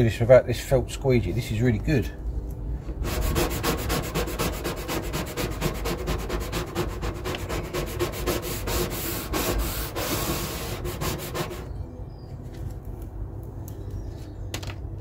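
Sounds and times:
decal rubbed through transfer tape: 0:03.0 - 0:11.7.

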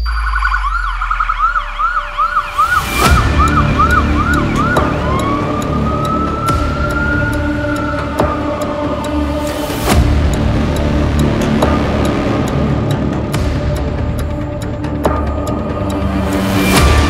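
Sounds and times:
emergency vehicle siren: 0:00.0 - 0:09.4
low music track: 0:00.0 - 0:17.0.

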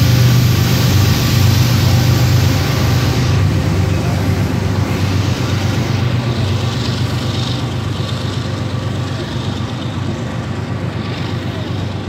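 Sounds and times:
freight train wheels rumbling: 0:00.0 - 0:12.0.

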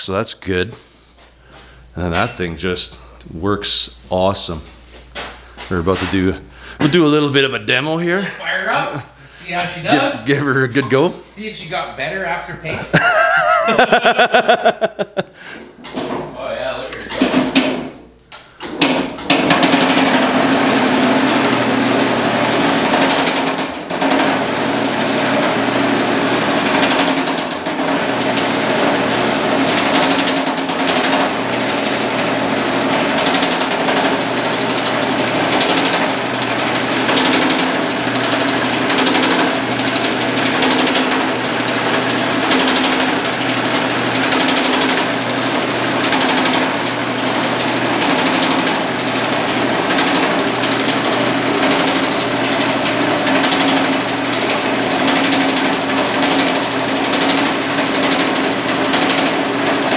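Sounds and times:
motor hum: 0:00.9 - 0:59.9
power hammer pounding sheet metal: 0:17.0 - 0:18.0, 0:18.6 - 0:59.9.

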